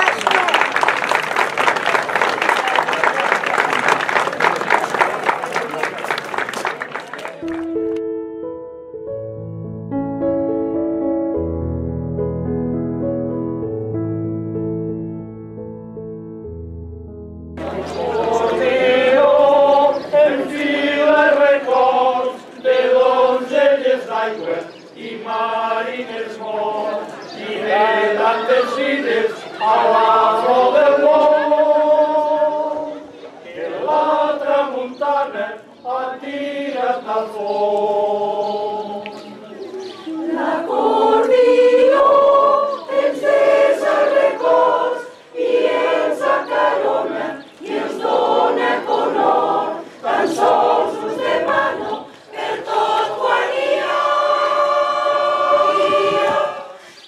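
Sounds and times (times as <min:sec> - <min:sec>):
mixed choir singing: 0:17.6 - 0:57.0.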